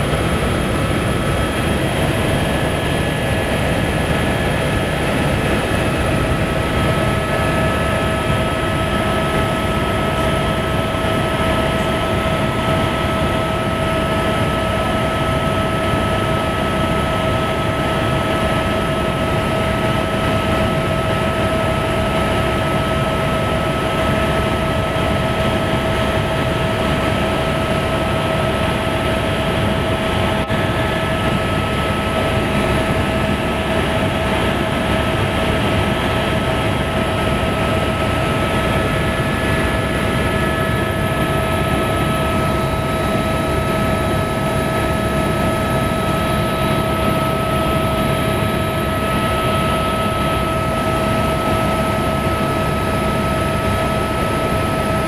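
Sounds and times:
helicopter cabin rumble and whine: 0.0 - 55.0.

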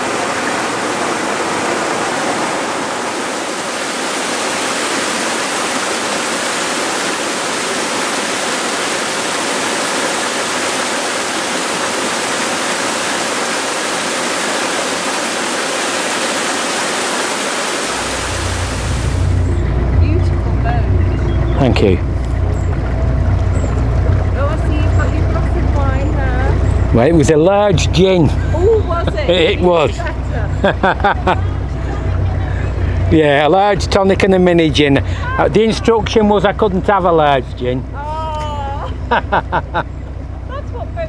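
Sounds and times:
water gushing into lock: 0.0 - 19.5
low rumble: 18.0 - 41.0.

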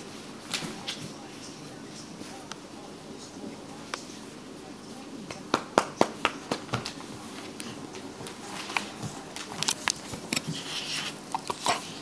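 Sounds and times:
soft clicks and rustles of handling: 6.8 - 12.0.

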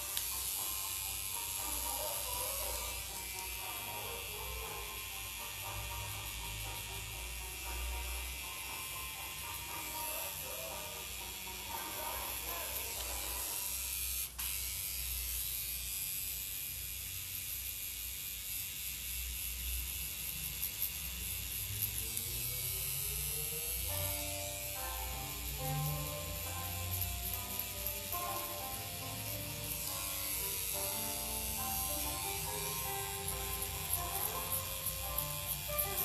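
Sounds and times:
background music: 0.0 - 13.7, 23.9 - 36.0
tattoo machine buzzing: 0.0 - 36.0.

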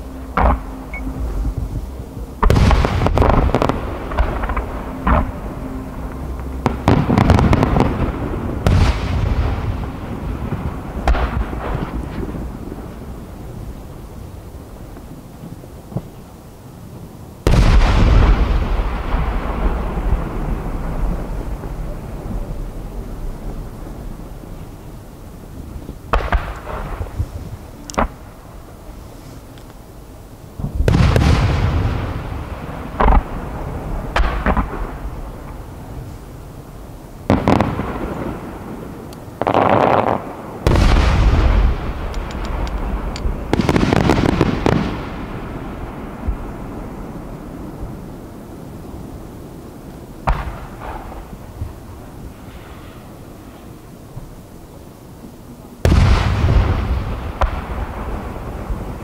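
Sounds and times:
firework boom: 0.0 - 5.4
firework bangs: 0.0 - 13.4, 17.4 - 24.8, 26.1 - 28.4, 30.6 - 36.3, 37.2 - 48.0, 50.2 - 54.3, 55.8 - 59.0
rolling echo: 0.0 - 14.2, 30.6 - 53.6
firework crackles: 0.0 - 59.0.

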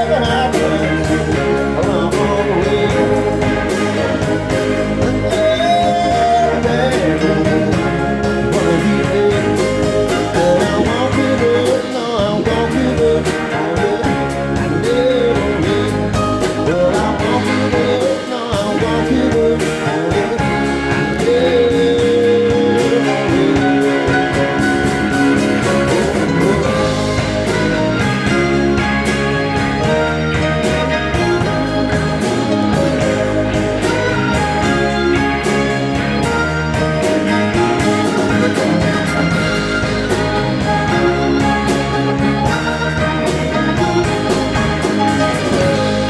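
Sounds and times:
bass: 0.0 - 46.0
drums keeping steady beat: 0.0 - 46.0
electric guitar: 0.0 - 46.0
keyboards: 0.0 - 46.0
pitch-bending lead line: 18.8 - 46.0.

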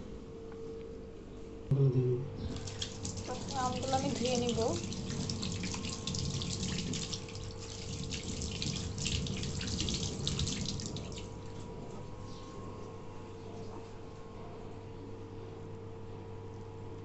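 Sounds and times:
tap water running into sink: 2.5 - 11.4
hands rinsing fruit splashing: 2.5 - 11.6.

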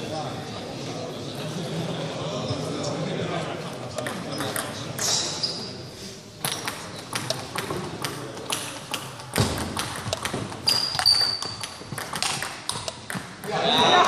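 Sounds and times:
table tennis ball hits: 4.0 - 5.4, 6.4 - 14.0.

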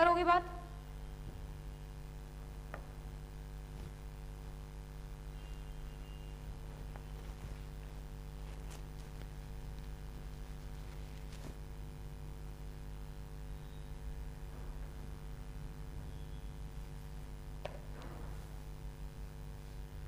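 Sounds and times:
low electrical hum: 0.0 - 20.0.

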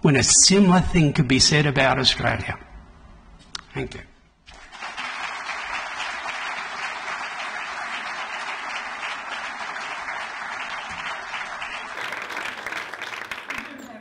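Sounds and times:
audience applauding: 4.5 - 14.0.

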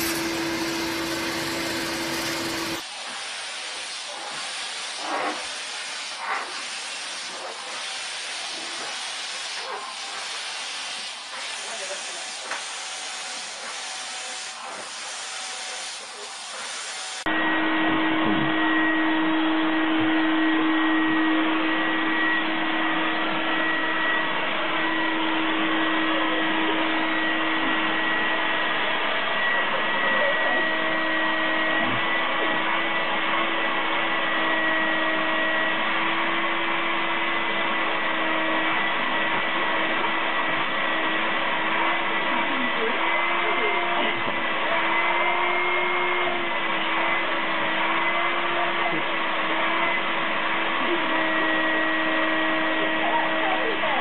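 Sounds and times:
vacuum cleaner hissing suction: 0.0 - 33.3
vacuum cleaner hum and whine: 0.0 - 54.0.

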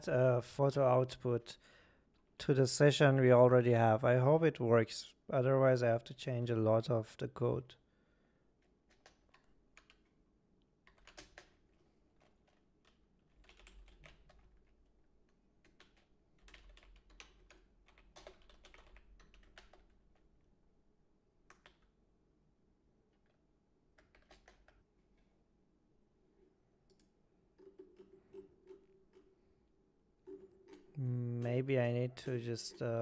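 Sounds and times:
faint keyboard typing: 8.6 - 20.4, 21.4 - 22.0, 23.1 - 25.3, 26.8 - 29.5.

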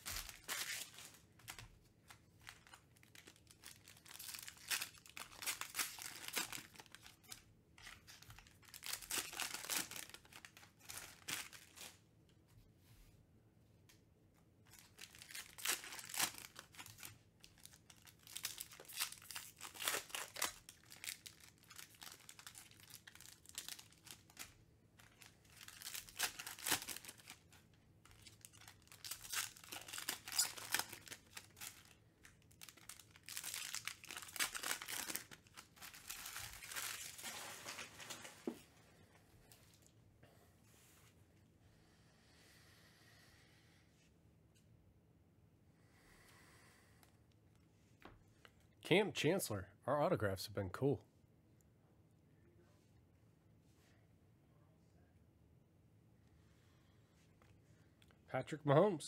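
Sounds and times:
foil wrappers crinkling: 0.0 - 12.0, 14.7 - 38.7.

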